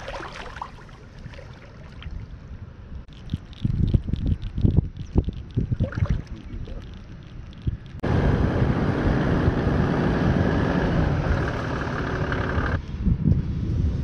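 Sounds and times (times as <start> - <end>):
wind on microphone: 1.2 - 11.6, 12.4 - 14.0
vehicle engine driving on sand: 8.0 - 14.0.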